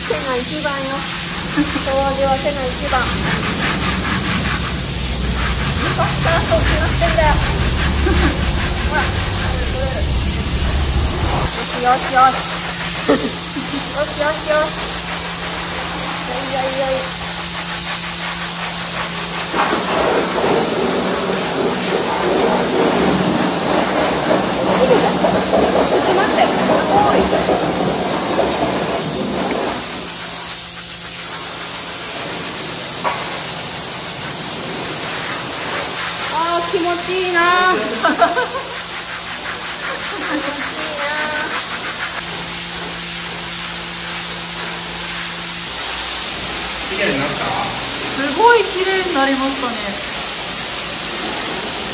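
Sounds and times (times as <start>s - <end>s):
machine humming: 0.0s - 31.1s
brush scrubbing wet floor: 0.0s - 51.9s
steady hiss: 0.0s - 51.9s.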